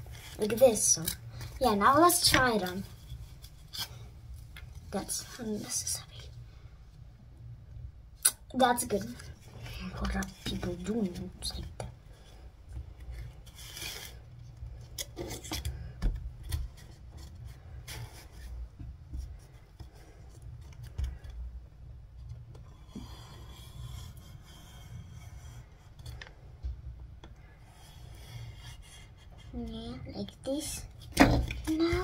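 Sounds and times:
paper scraping and rustling: 13.0 - 15.9.

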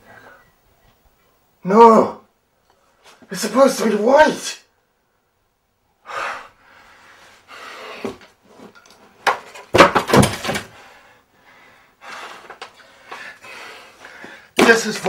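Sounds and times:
loud crashing thump: 9.7 - 10.7.

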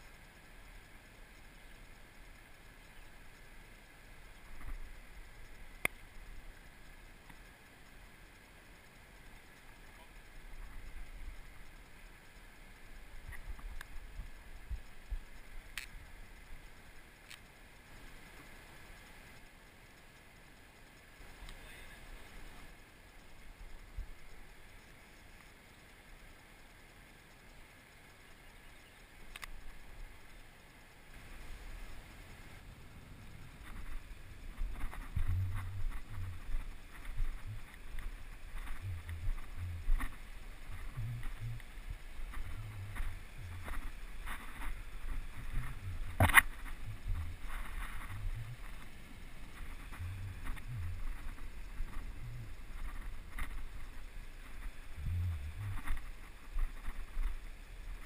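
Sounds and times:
rustling of brush: 29.0 - 58.0.

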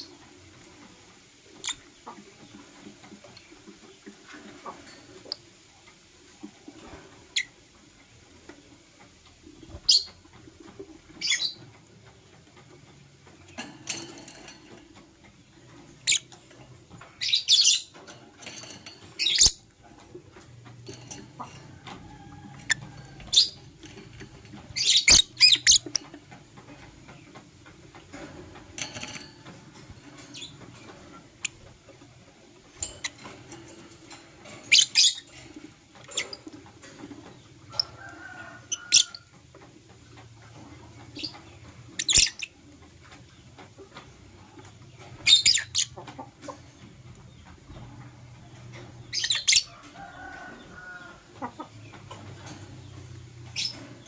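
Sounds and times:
lovebird chirping: 24.8 - 26.0.

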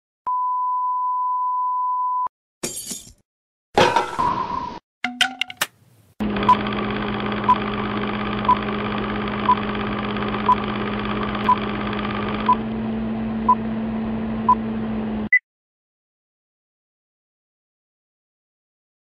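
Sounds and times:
film projector hum and hiss: 6.2 - 12.5.

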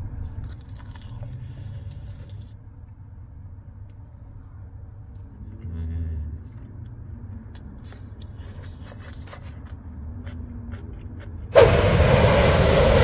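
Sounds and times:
airplane engine noise: 11.2 - 13.0.

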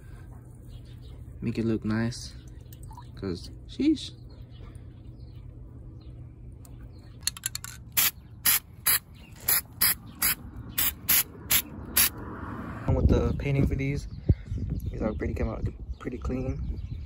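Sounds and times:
spray paint can hissing bursts: 8.0 - 12.2.

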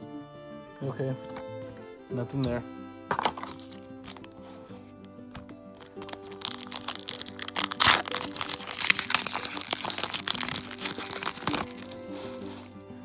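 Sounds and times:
background music: 0.0 - 13.0
foil wrapper ripping: 3.2 - 4.4, 5.8 - 12.7
foil wrapper crinkling: 3.2 - 4.5, 5.8 - 12.7.

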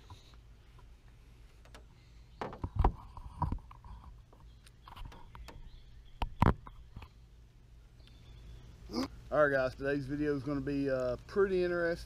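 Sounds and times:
camera handling knocks and thumps: 2.4 - 3.9.

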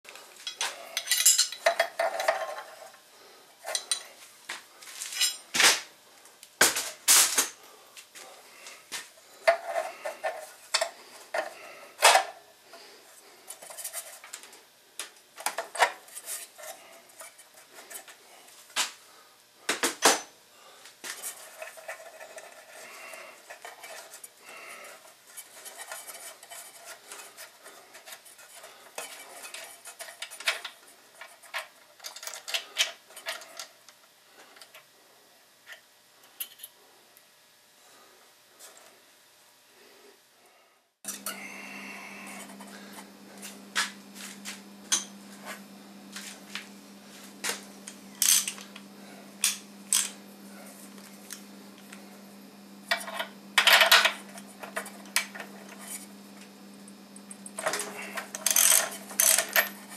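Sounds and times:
ratchet wrench clinking: 58.4 - 59.7.

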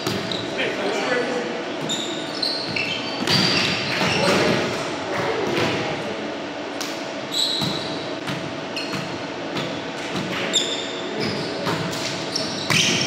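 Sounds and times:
sneakers squeaking on wooden floor: 0.0 - 0.6, 1.8 - 4.7, 7.3 - 13.0.

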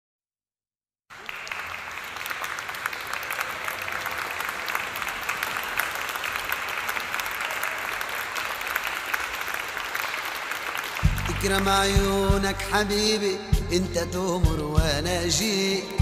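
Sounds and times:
audience applauding: 1.1 - 12.5.

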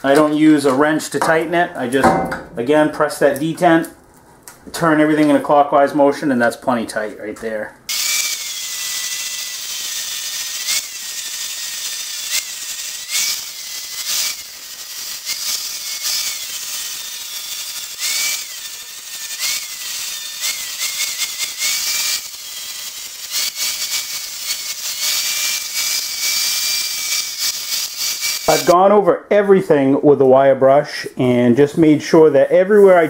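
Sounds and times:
angle grinder grinding metal: 7.9 - 28.8.

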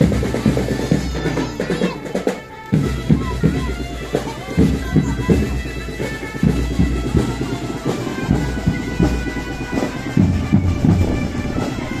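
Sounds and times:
marching drum beat: 0.0 - 12.0
wind instruments: 0.0 - 12.0.

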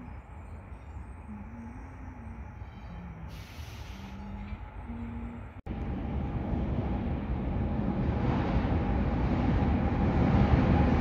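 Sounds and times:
faint hum: 0.0 - 3.4
train rumbling through tunnel: 0.0 - 11.0.

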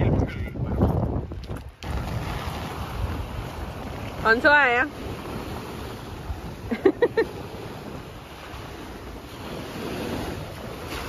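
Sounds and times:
wind buffeting microphone: 0.0 - 11.0
small waves washing ashore: 1.3 - 11.0.

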